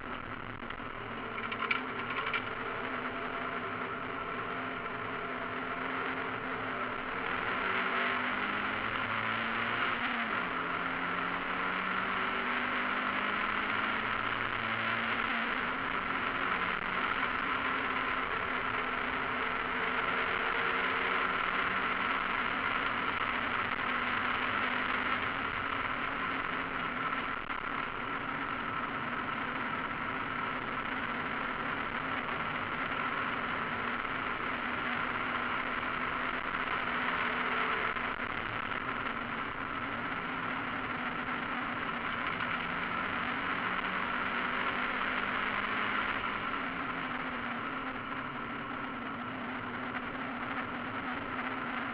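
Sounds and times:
race car engine under load: 0.0s - 10.2s
wind and road noise: 0.0s - 51.9s.

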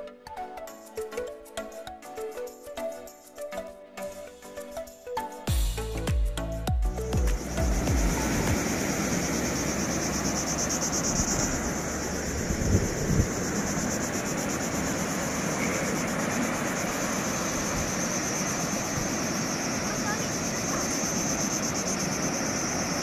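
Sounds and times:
high-pitched insect drone: 4.1s - 23.0s
wind buffeting microphone: 8.0s - 20.7s.

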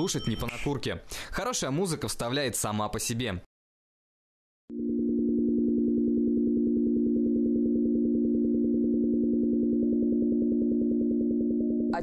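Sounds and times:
pulsing electronic drone: 4.7s - 12.0s.

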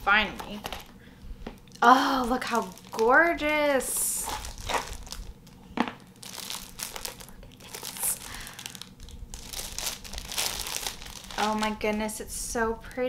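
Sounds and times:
paper wrapping crinkling: 2.0s - 12.1s.

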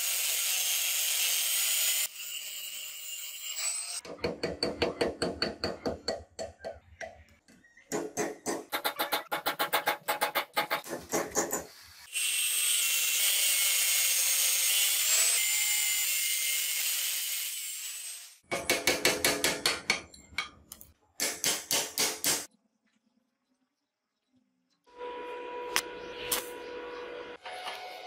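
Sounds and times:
angle grinder cutting steel: 0.0s - 4.0s, 12.1s - 18.4s.

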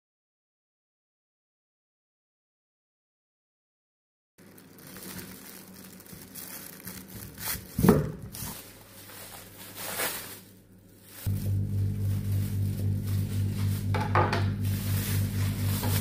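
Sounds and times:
wrapping paper crinkling: 4.4s - 16.0s
low pulsing hum: 10.5s - 16.0s.

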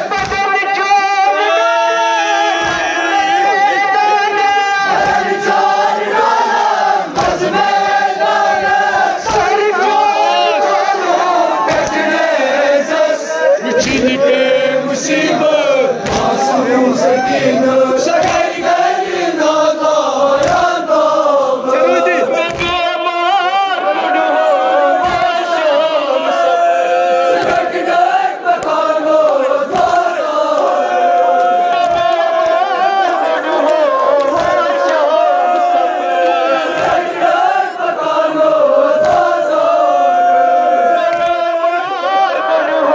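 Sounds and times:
group chanting a lament: 0.0s - 42.9s.

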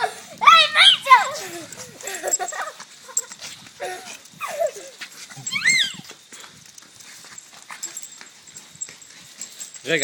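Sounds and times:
small dogs whining: 3.2s - 6.2s.

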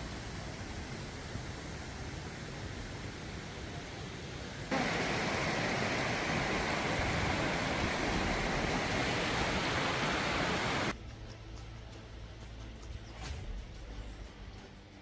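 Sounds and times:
floodwater rushing over gravel: 4.7s - 10.9s.

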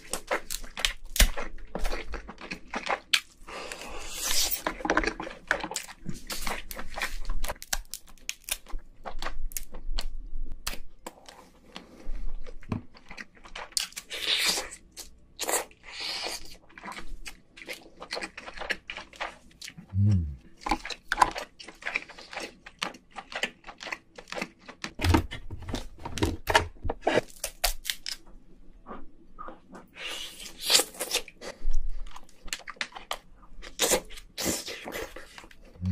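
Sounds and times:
chewing: 0.0s - 25.8s, 28.8s - 35.9s
tearing and sucking: 3.7s - 4.6s, 30.0s - 31.6s
crab shell cracking: 7.4s - 8.8s.

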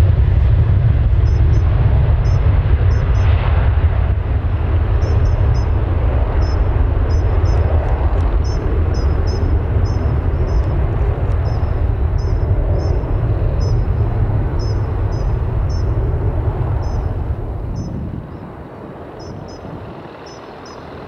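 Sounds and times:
jet engines roaring: 0.0s - 21.0s
bird chirping: 1.2s - 3.3s, 5.0s - 7.7s, 8.4s - 16.0s, 16.8s - 17.1s, 19.2s - 20.9s.

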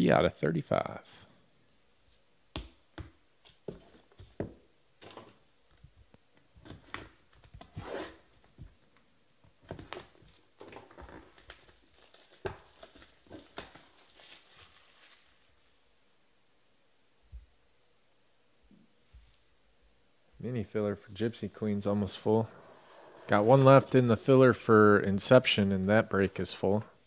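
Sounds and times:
plastic wrap crinkling and tearing: 9.7s - 15.8s.

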